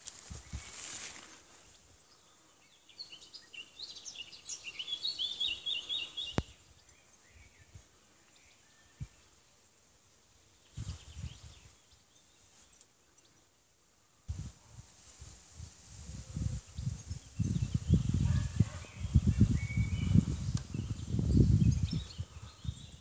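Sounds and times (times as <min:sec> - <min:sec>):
faint outdoor background: 0:00.0 - 0:23.0
songbird high chirps: 0:01.6 - 0:09.4, 0:10.5 - 0:13.6, 0:16.3 - 0:23.0.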